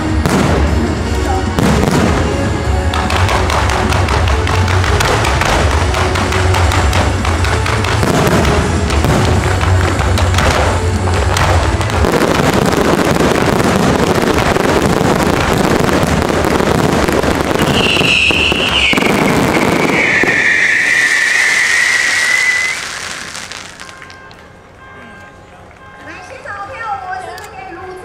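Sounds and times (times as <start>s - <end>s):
fireworks crackling and rumbling: 0.0s - 24.8s
firework whistle sliding lower: 17.6s - 24.3s.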